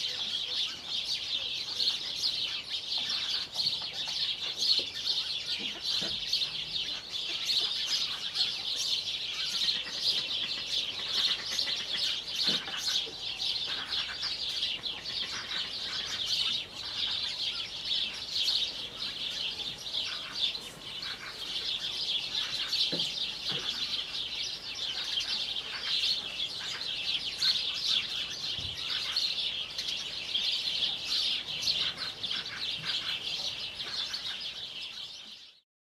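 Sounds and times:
small birds chirping: 0:00.0 - 0:35.6
chicken clucking: 0:03.0 - 0:18.3.

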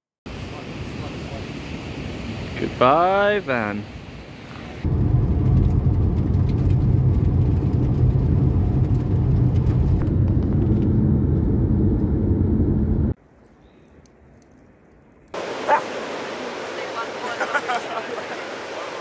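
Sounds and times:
car engine and road noise: 0:04.6 - 0:13.2.

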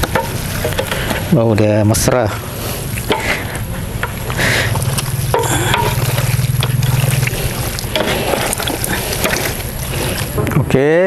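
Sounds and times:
steady low hum: 0:00.0 - 0:10.7
wet squishing of meat: 0:02.7 - 0:10.7.

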